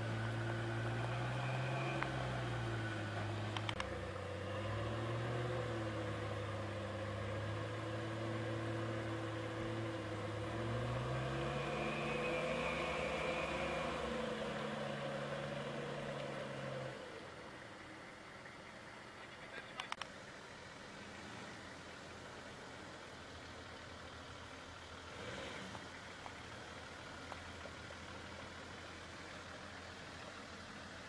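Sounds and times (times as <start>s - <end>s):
off-road vehicle engine revving: 0.0s - 31.0s
faint clicks: 3.5s - 3.9s, 19.2s - 20.1s.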